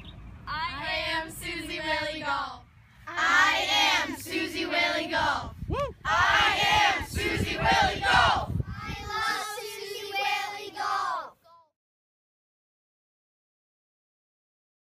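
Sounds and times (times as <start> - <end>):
children shouting and cheering: 5.0 - 11.6.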